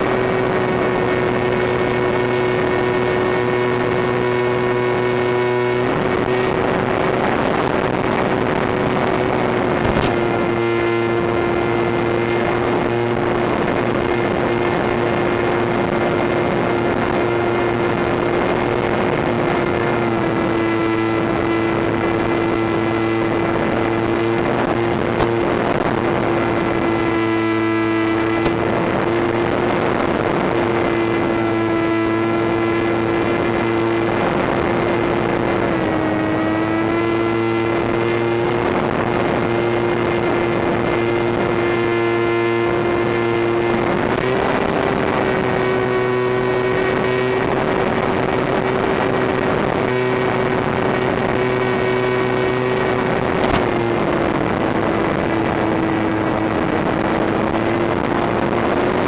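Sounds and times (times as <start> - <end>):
wind rush: 0.0 - 59.0.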